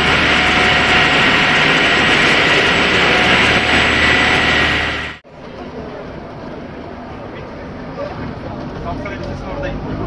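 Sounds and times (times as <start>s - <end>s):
boat wake churning: 0.0s - 5.2s.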